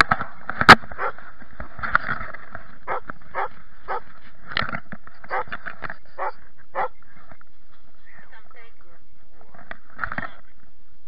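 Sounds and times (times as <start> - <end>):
dog barking: 1.0 - 1.2, 2.9 - 4.1, 5.3 - 5.5, 6.2 - 7.0.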